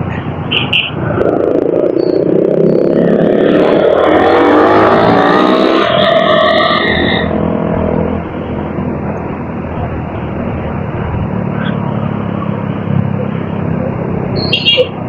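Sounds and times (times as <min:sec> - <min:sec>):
vehicle engine speeding up: 0:01.0 - 0:14.4.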